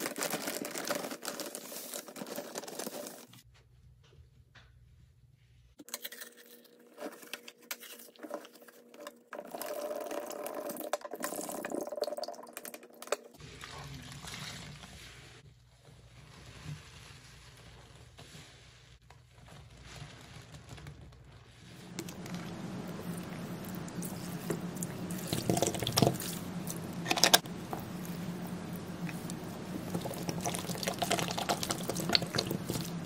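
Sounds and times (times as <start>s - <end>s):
cardboard canister being crushed: 0.0s - 3.4s
powder crackling into a basin: 0.0s - 3.4s, 5.9s - 33.0s
sponge squishing in soapy water: 13.3s - 33.0s.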